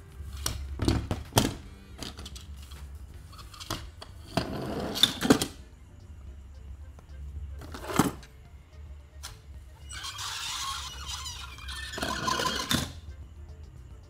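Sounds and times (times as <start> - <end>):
toy wheels rolling and scraping: 0.0 - 5.7, 6.9 - 8.4, 9.2 - 13.2.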